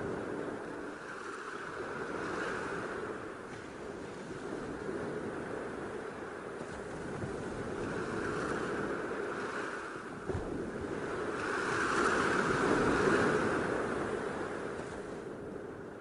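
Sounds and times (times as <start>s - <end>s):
sea surf crashing on rocks: 0.0s - 16.0s.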